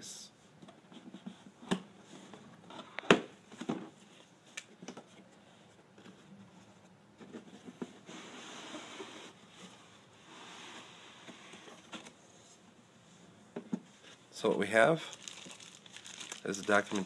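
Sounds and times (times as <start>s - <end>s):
cardboard and paper rustling: 15.1s - 17.0s.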